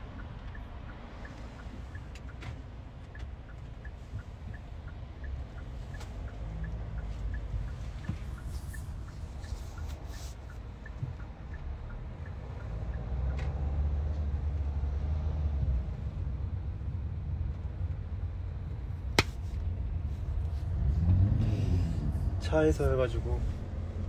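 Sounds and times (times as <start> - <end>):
car cabin road rumble: 0.0 - 24.0.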